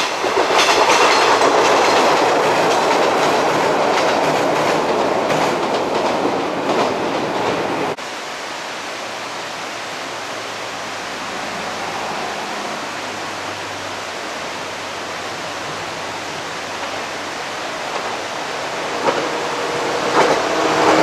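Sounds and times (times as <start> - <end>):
distant electric train hum: 0.0 - 8.0, 9.7 - 21.0
steady rushing noise: 0.0 - 21.0.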